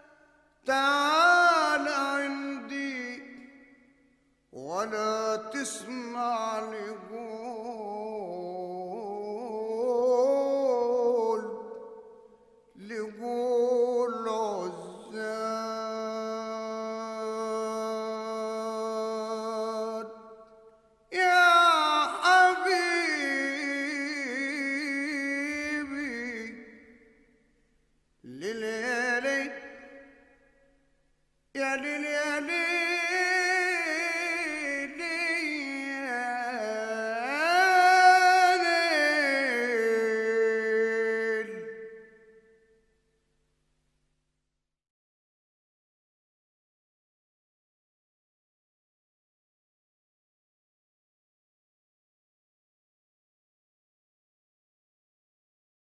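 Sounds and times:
solo voice singing ornamented melody: 0.7 - 3.7, 4.6 - 20.5, 21.1 - 27.0, 28.3 - 30.2, 31.6 - 42.3
person singing: 21.1 - 26.8.

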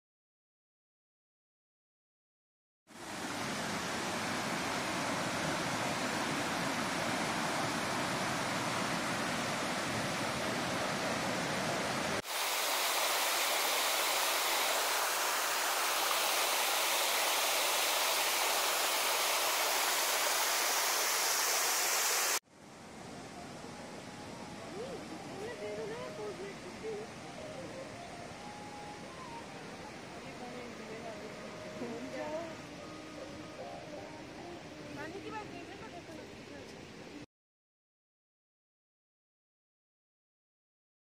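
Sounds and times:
water rushing over rocks: 3.0 - 22.4.

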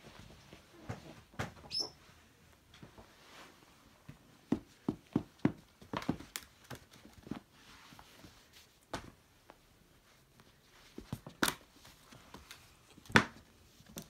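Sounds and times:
paws and slipper thumping floor: 4.1 - 7.5.

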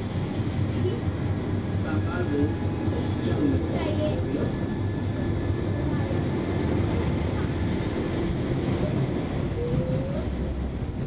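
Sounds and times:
tram rumbling along track: 0.0 - 11.0
tram wheel squeal: 8.8 - 10.5.

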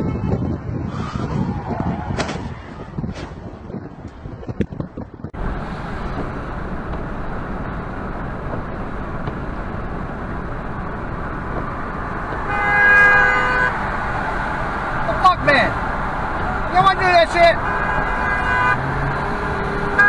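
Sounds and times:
car road and engine noise: 0.0 - 20.0
car horn blast: 12.3 - 13.8, 17.6 - 18.9.

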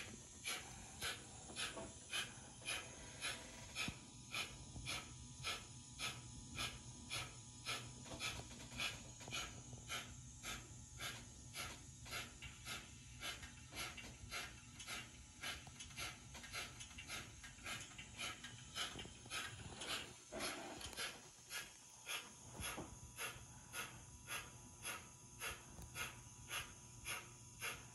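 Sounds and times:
steam exhaust chuffs from small speaker: 0.0 - 27.9.

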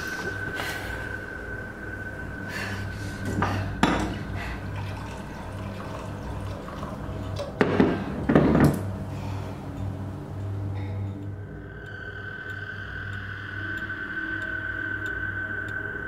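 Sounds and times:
water pouring into a glass: 3.6 - 8.3.

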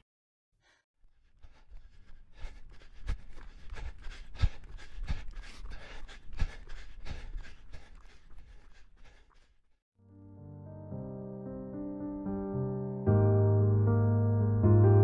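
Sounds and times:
person panting: 0.6 - 9.8.

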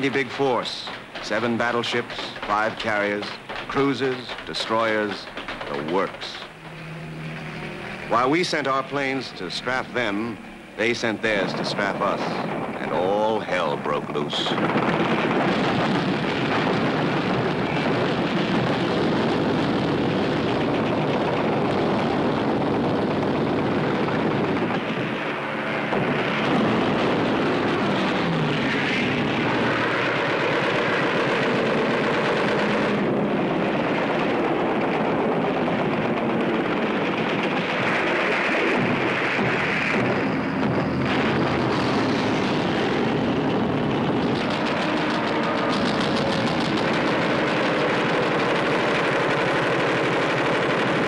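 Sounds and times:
propeller aircraft engines: 0.0 - 51.0.

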